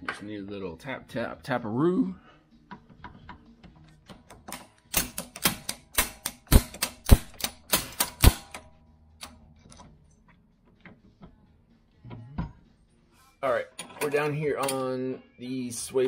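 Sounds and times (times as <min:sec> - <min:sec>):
sharp metal-on-metal taps: 0:04.1 - 0:08.7.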